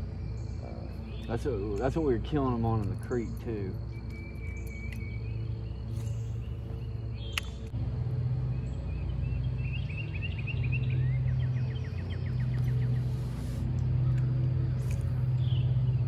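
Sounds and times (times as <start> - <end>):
birds chirping: 0.0 - 16.0
low engine hum: 0.0 - 16.0
sharp click: 7.3 - 7.8.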